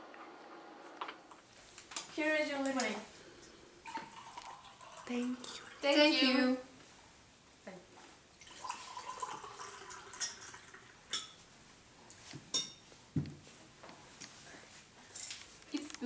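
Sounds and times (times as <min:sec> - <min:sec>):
liquid pouring into a glass: 0:03.8 - 0:05.8, 0:08.4 - 0:11.2
glass and cutlery clinking: 0:08.5 - 0:11.4, 0:12.5 - 0:12.9.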